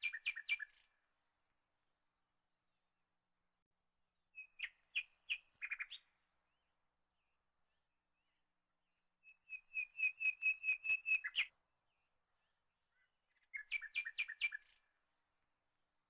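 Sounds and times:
small bird chirping: 0.0 - 0.9, 4.4 - 6.2, 9.2 - 11.5, 12.9 - 14.8.

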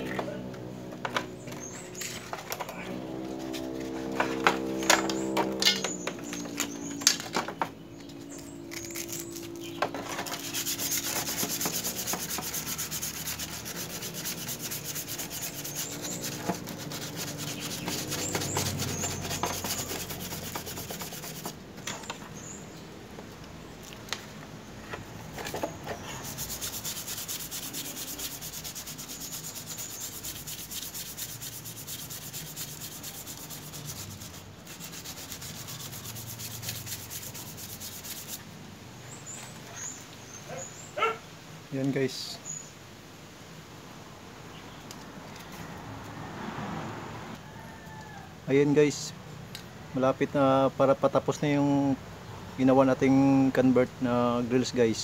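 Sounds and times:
sandpaper rasping on metal: 8.7 - 21.6, 26.0 - 38.4.

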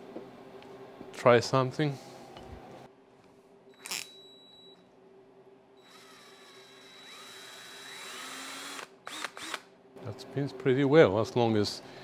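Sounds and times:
cordless drill whining: 5.8 - 9.6.

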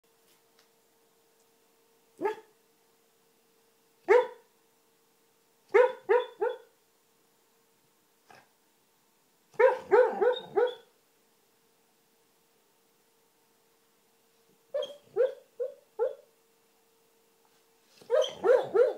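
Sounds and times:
dog yipping woofs: 2.2 - 2.5, 4.1 - 4.4, 5.7 - 6.7, 9.6 - 10.9, 14.7 - 16.3, 18.0 - 18.9.

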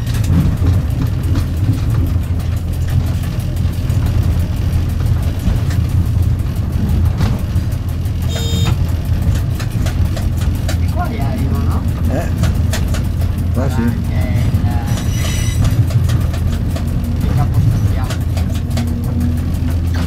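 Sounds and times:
diesel train engine running: 0.0 - 20.0
wheels clicking over rail joints: 0.0 - 20.0
brief beep: 8.3 - 8.8.

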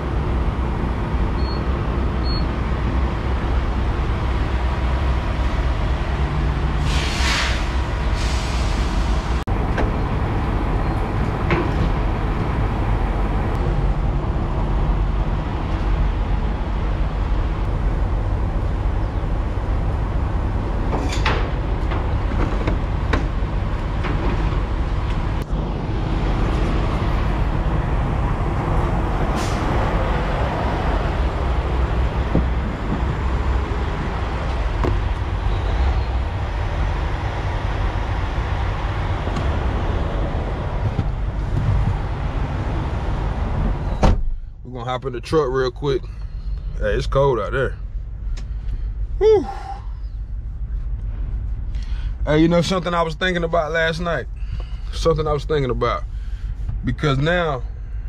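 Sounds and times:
diesel truck engine idling: 24.6 - 58.0.

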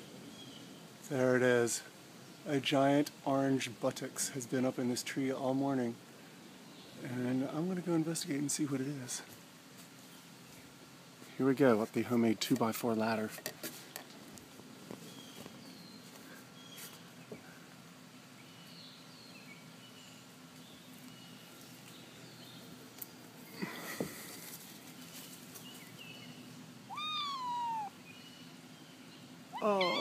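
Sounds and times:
rustle: 0.0 - 30.0
bird chirps: 25.0 - 30.0
cat meowing: 26.9 - 28.0, 29.5 - 30.0.

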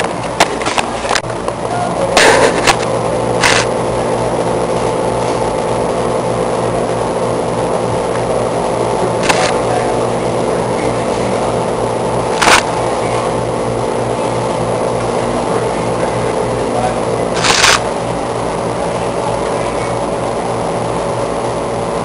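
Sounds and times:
fan machinery humming: 0.0 - 22.0.

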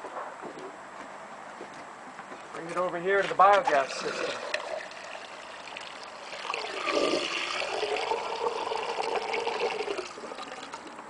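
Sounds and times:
slurry gurgling into pipe: 3.7 - 11.0.

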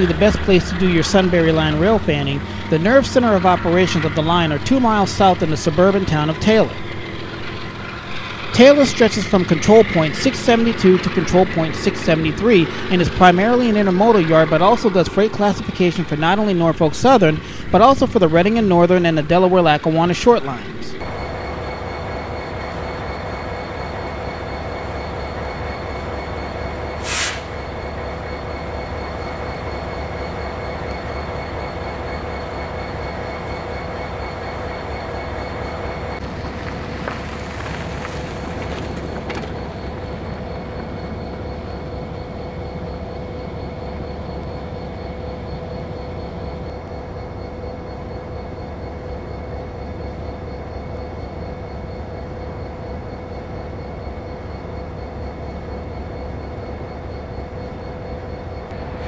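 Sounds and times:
constant tones: 0.0 - 59.0
freight train rumbling: 0.0 - 59.0
high-pitched hiss: 26.9 - 27.8.

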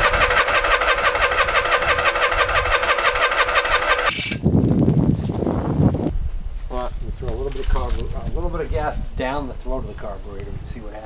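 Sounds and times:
electric starter cranking engine: 0.0 - 4.4.

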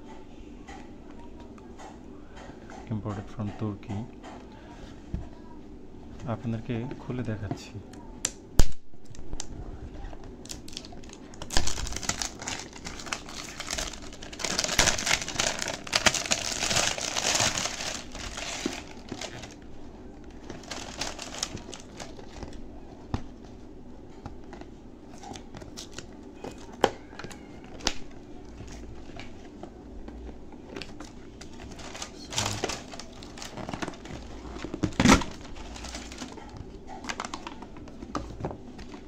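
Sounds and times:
plastic wrap crinkling and tearing: 10.4 - 22.6, 30.7 - 39.0.

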